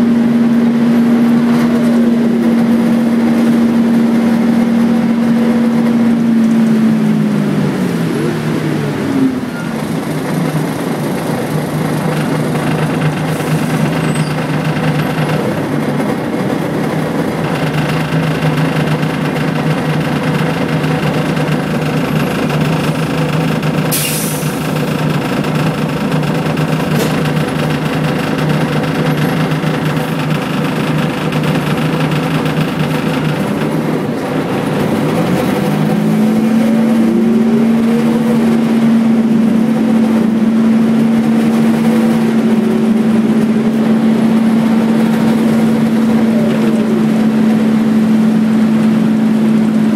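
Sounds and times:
bus diesel engine running: 0.0 - 49.9.

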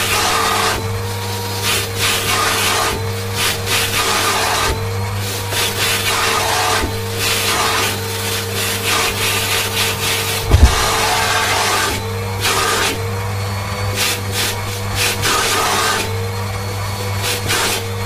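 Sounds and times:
vacuum cleaner hose sucking: 5.3 - 13.4
short low thump: 10.4 - 11.2.

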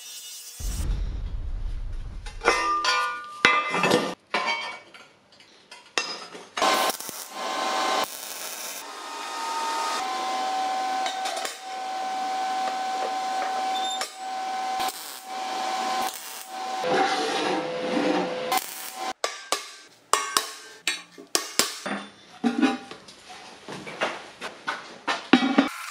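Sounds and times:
welding arc crackling and hissing: 6.6 - 16.9, 18.5 - 19.2.

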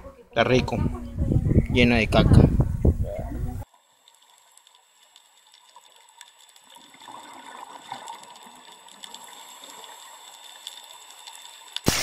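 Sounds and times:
faint running water: 2.7 - 11.9.

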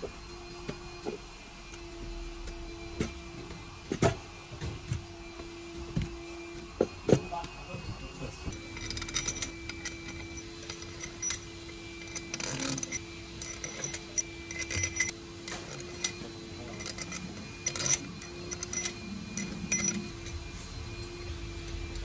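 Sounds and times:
steady low hum: 0.0 - 22.0
metal tools clinking: 7.1 - 22.0.

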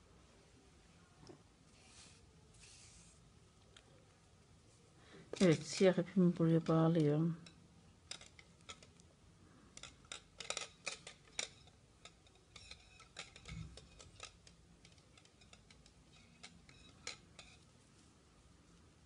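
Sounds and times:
knitting needles clicking together: 8.1 - 9.1.

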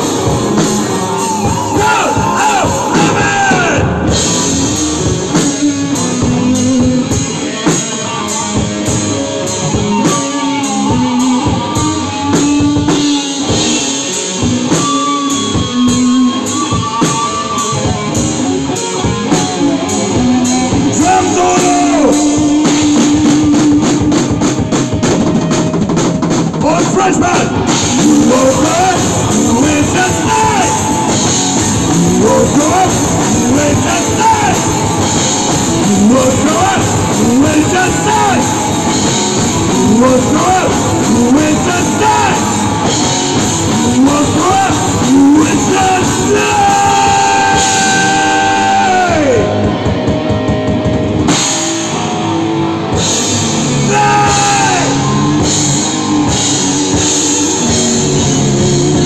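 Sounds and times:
person singing into a microphone: 0.0 - 24.5, 26.7 - 49.8, 53.7 - 58.4
drum kit: 0.0 - 59.0
electric guitars: 0.0 - 59.0.

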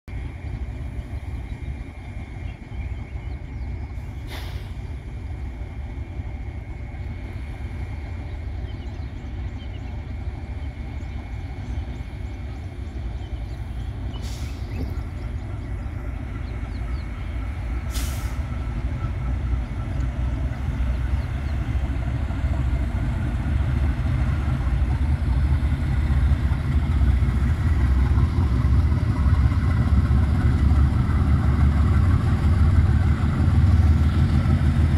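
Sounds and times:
locomotive engines rumbling: 0.1 - 34.9
brief hisses: 4.1 - 4.9, 17.9 - 18.5.

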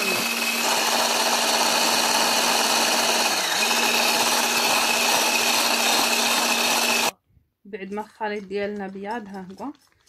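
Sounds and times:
electric hand mixer whisking: 0.0 - 7.1.

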